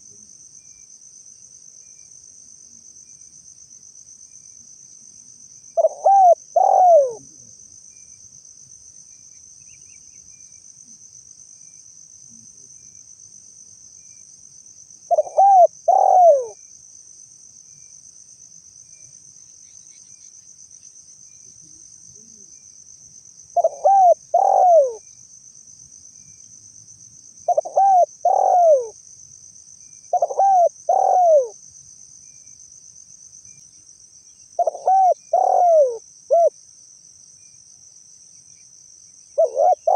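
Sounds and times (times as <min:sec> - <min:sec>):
high insect drone: 0:00.0 - 0:39.9
dove cooing: 0:05.8 - 0:07.5, 0:15.1 - 0:16.6, 0:23.6 - 0:25.0, 0:27.4 - 0:29.0, 0:30.1 - 0:31.6, 0:34.6 - 0:36.5, 0:39.4 - 0:39.9.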